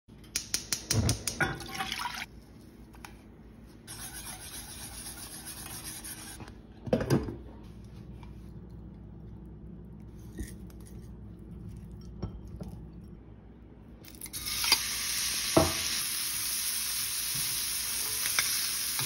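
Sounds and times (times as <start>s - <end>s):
grits hissing while whisked: 3.6s - 6.5s.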